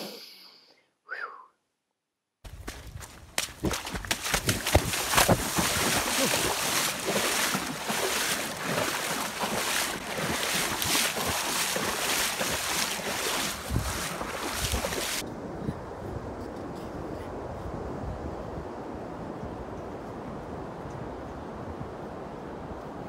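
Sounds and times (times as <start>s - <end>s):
bare feet splashing in puddle: 2.5s - 15.2s.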